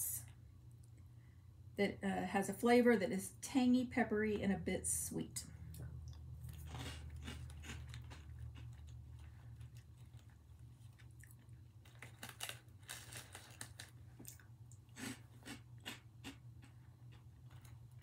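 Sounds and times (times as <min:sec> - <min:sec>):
person chewing crunchy snack: 0:06.4 - 0:18.0.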